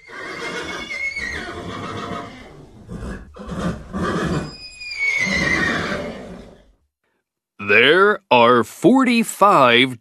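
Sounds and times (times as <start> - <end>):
horse neighing: 0.0 - 6.7.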